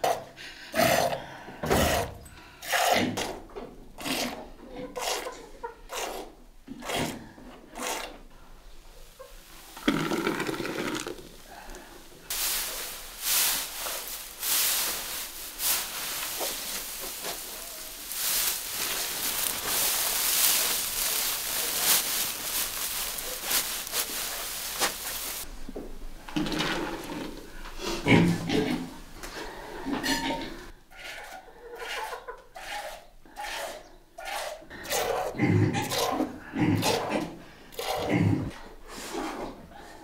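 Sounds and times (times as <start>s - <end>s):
milk squirting into pail: 9.8s - 11.4s.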